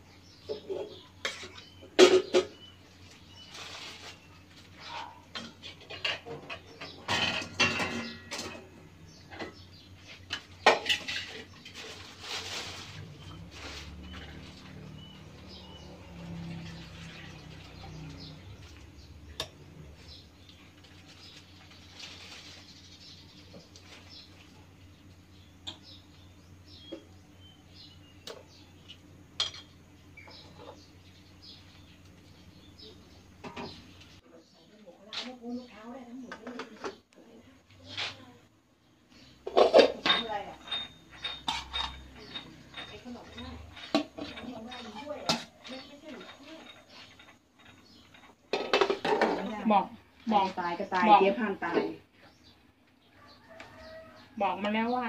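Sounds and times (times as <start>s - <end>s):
metal spoon clinking on pot: 39.5s - 48.9s.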